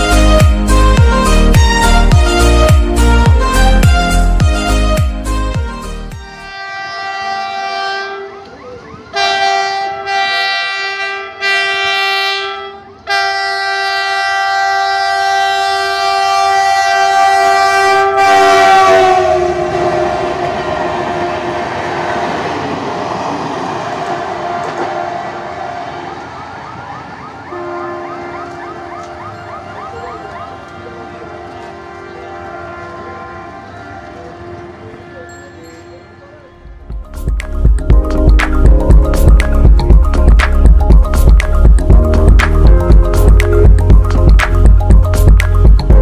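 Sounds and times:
locomotive horn blasts: 0.0 - 21.5, 27.5 - 36.8
train rumbling past: 0.0 - 46.0.

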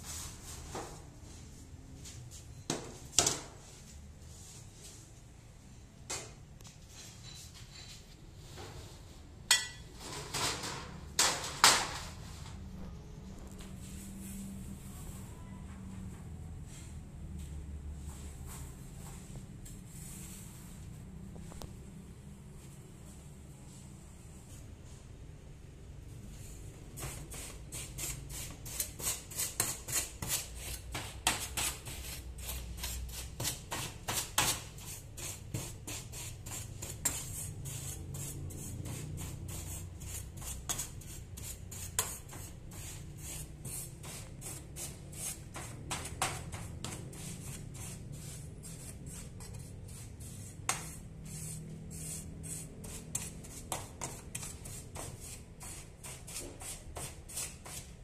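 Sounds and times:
dry scratching strokes: 26.4 - 58.0.

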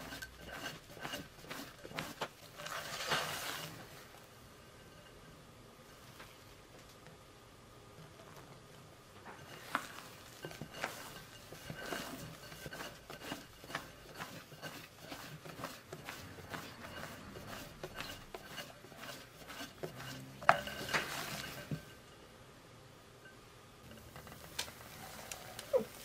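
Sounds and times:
spatula stirring batter: 0.0 - 4.1, 9.3 - 22.0, 23.8 - 26.0.

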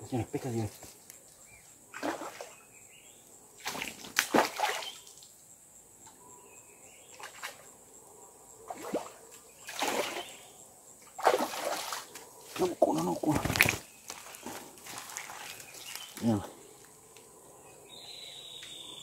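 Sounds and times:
fish splashing at water surface: 11.2 - 12.2.

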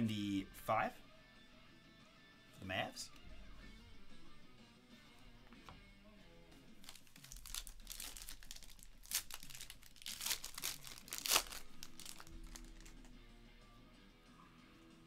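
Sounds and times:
faint background music: 0.0 - 15.0
foil pack tearing and crinkling: 6.8 - 13.1.

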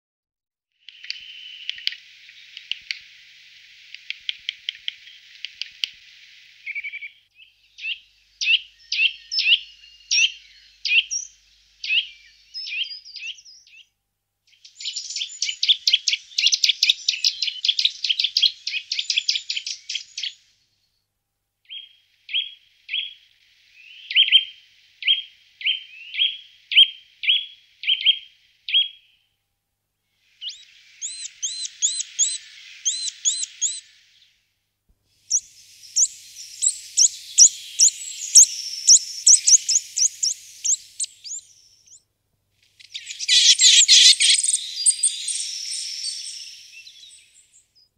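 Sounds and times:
nuthatch singing trills: 6.7 - 13.8, 14.5 - 20.4, 30.4 - 33.9, 35.3 - 42.0, 42.8 - 47.9.

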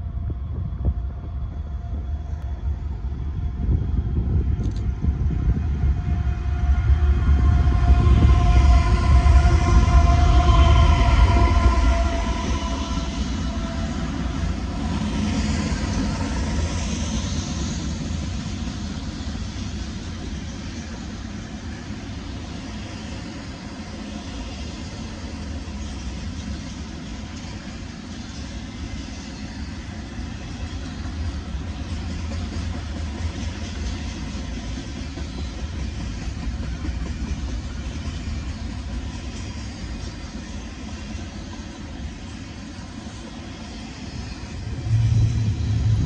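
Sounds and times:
train wheels clattering on rail: 3.5 - 46.0
locomotive engine: 44.4 - 46.0.

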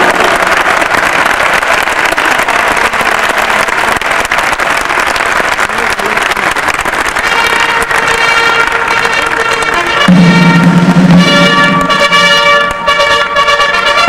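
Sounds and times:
crowd applauding: 0.0 - 14.0
band music: 7.2 - 14.0.

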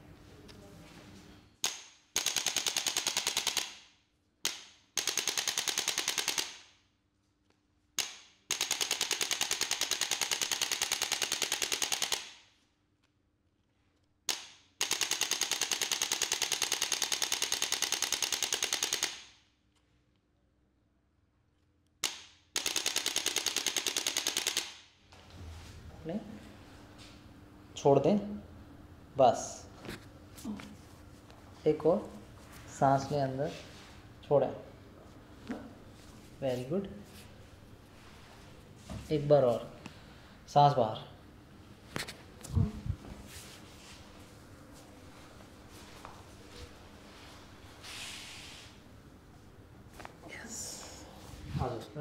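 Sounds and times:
adjusting gun rapid clicking: 1.6 - 3.8, 4.4 - 6.7, 8.0 - 12.4, 14.3 - 19.4, 22.0 - 24.8.

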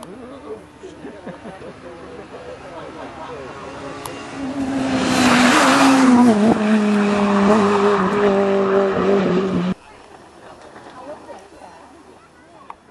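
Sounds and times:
tyre and road noise: 0.0 - 12.9
rally car engine passing by: 2.1 - 10.2.

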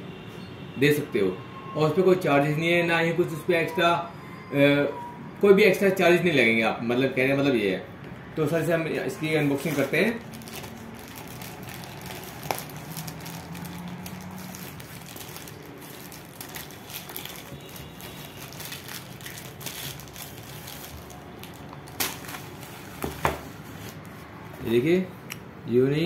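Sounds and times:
plastic wrapping crinkling: 9.2 - 24.2.

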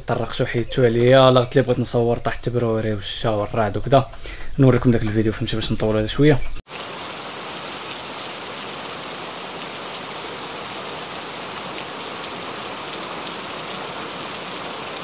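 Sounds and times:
rain hissing on concrete: 6.6 - 15.0.

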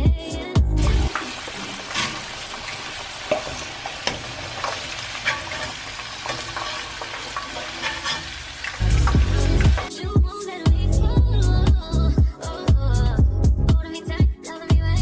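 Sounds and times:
potatoes sizzling in hot oil: 1.1 - 9.9.

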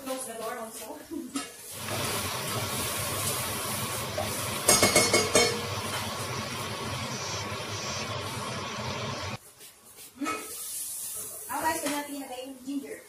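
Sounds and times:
onion sizzling in hot oil: 1.6 - 9.4, 10.4 - 11.8.

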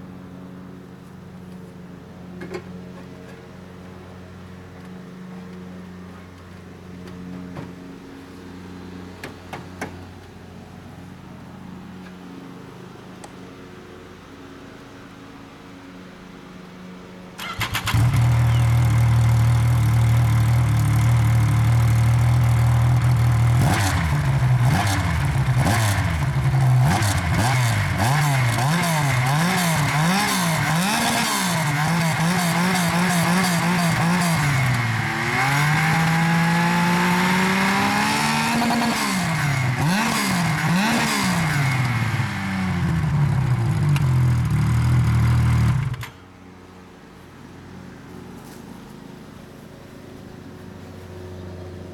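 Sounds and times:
snowmobile engine revving: 17.4 - 46.1
snowmobile engine idling: 17.5 - 46.1.

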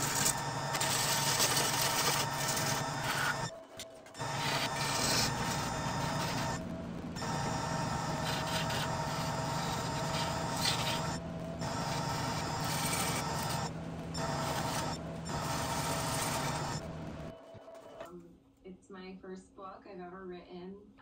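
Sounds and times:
turning tool rasping on wood: 0.0 - 3.5, 4.2 - 17.2
lathe motor hum: 0.0 - 17.6.

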